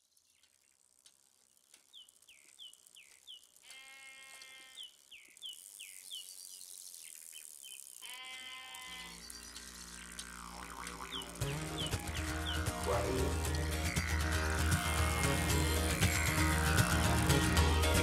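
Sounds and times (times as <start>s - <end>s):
sheep bleating: 3.6s - 4.9s, 8.0s - 9.4s, 11.2s - 18.0s
low droning music: 9.4s - 18.0s.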